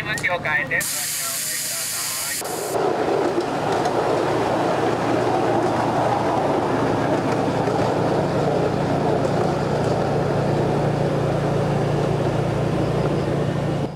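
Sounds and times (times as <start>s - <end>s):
low hum: 1.2s - 13.9s
miniature train rolling: 2.4s - 13.2s.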